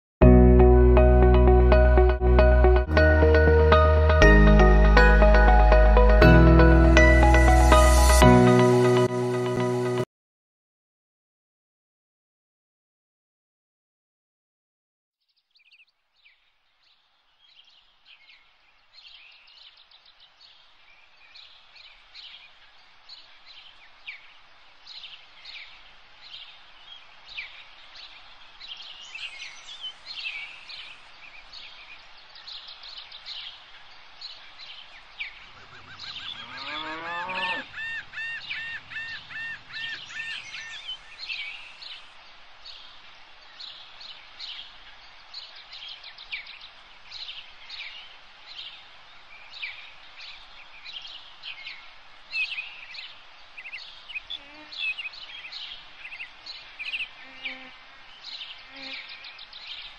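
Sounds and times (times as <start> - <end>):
birds chirping: 15.3 - 59.9
outdoor hiss: 17.0 - 36.3, 40.0 - 59.9.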